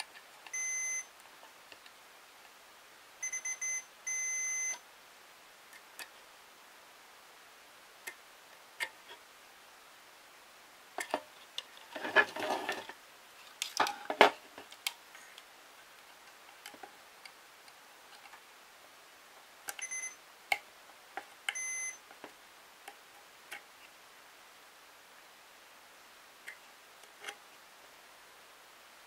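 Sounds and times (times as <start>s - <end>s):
tester short beeps: 3.2s - 4.8s, 19.8s - 20.2s, 21.5s - 22.0s
handling noise: 11.0s - 15.0s.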